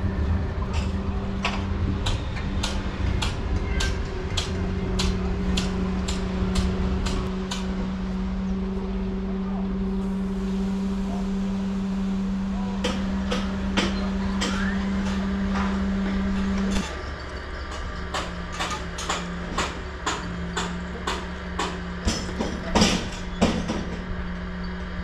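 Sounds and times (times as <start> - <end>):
machine hum: 0.0 - 25.0
sharp hammering knocks: 12.8 - 17.0, 18.0 - 24.1.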